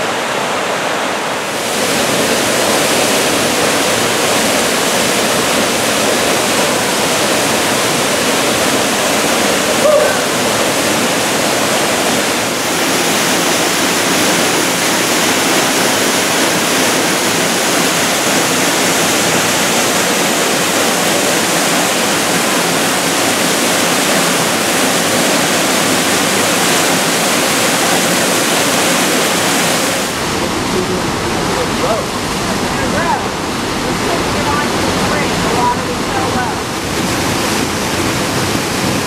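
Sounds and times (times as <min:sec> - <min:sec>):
waterfall rushing and splashing: 0:00.0 - 0:39.0.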